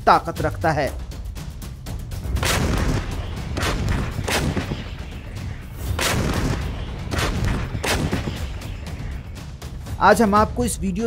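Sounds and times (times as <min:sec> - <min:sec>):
background music: 0:00.0 - 0:11.0
artillery guns firing: 0:02.3 - 0:09.2.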